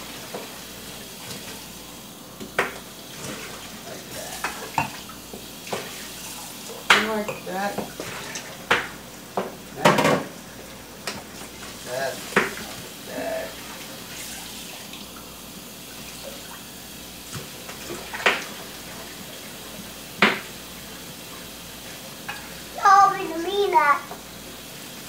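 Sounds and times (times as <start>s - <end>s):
tap running into sink: 12.3s - 12.8s, 20.2s - 20.5s
sharp knocks at sink: 20.2s - 20.5s.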